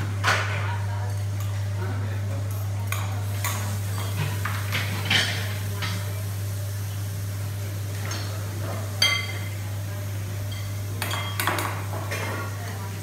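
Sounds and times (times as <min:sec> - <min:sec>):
metal bowls and utensils clinking: 0:10.5 - 0:12.8.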